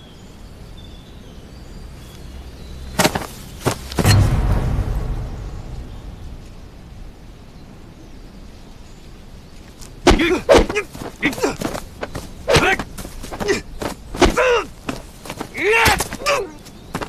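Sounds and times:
low background rumble: 0.0 - 16.9
scuffling feet: 2.9 - 4.2, 9.6 - 17.0
thuds of blows: 2.9 - 7.0, 10.0 - 17.0
men grunting and yelling: 10.0 - 16.7.

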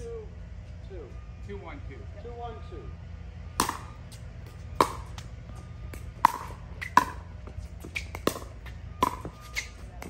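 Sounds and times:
ball bouncing on hard court: 3.6 - 5.3, 5.9 - 10.0.

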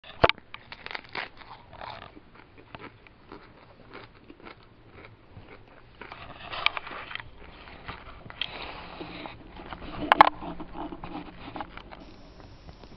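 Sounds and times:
tortoise crunching leaf: 0.0 - 4.4, 5.6 - 12.9
rustling: 6.0 - 12.9.

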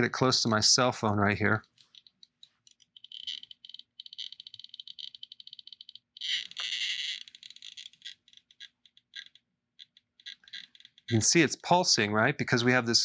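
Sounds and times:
meter audio crackling: 10.4 - 12.1.

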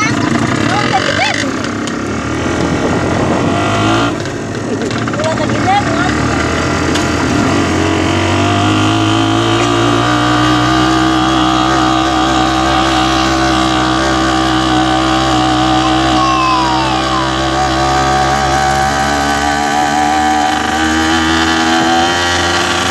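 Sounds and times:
road noise: 0.0 - 22.9
vehicle engine running: 0.0 - 22.9
wind noise: 2.3 - 4.8.

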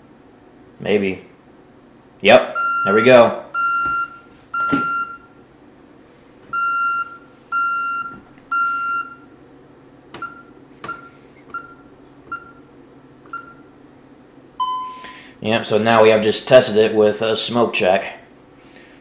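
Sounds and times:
high alarm beeps: 2.5 - 5.4, 6.5 - 9.3, 14.6 - 15.0
low alarm tone: 2.5 - 5.4, 6.5 - 9.3, 14.6 - 15.0
short beeps with clicks: 3.6 - 5.3, 10.2 - 12.6, 14.6 - 15.0.

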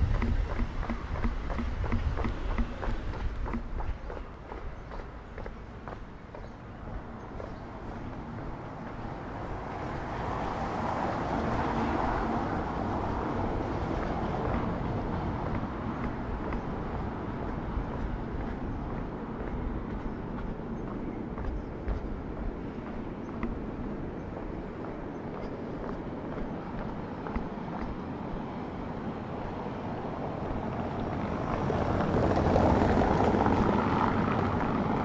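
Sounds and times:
street traffic rumble: 0.0 - 35.0
vehicle passing: 0.0 - 35.0.

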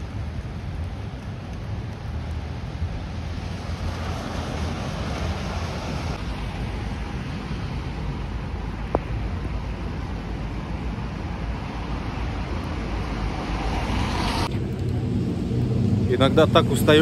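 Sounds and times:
wind: 0.0 - 17.0
ocean surf: 3.3 - 14.5.

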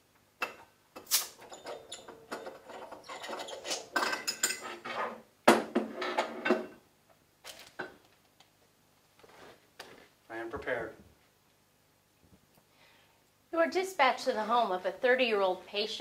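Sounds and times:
scraping and rustling: 9.2 - 10.2.

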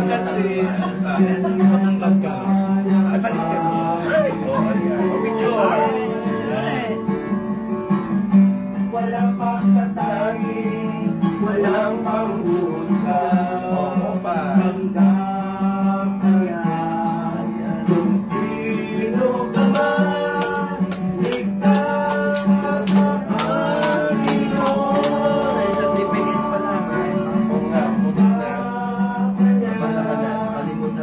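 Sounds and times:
voices singing: 0.0 - 7.0, 9.4 - 31.0
acoustic guitar: 0.0 - 31.0
hand claps: 19.6 - 26.9.

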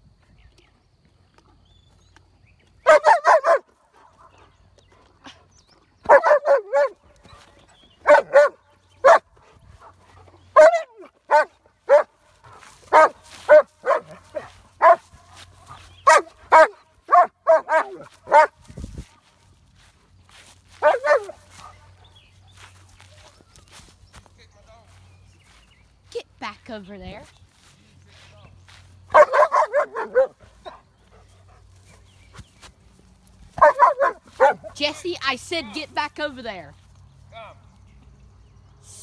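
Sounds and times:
dog barking: 2.8 - 4.3, 6.0 - 7.0, 8.0 - 9.3, 10.5 - 12.1, 12.9 - 15.1, 16.0 - 18.6, 20.8 - 21.8, 29.1 - 30.8, 33.6 - 34.8.

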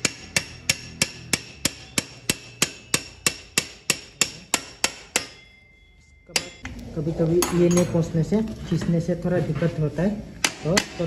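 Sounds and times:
hammer striking metal axle: 0.0 - 6.7.

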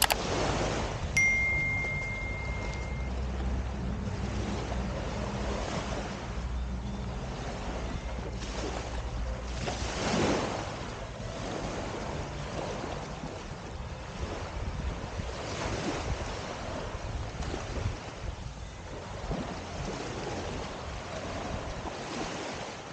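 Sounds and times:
small waves lapping on shore: 0.0 - 22.9
wind buffeting microphone: 9.1 - 22.4.

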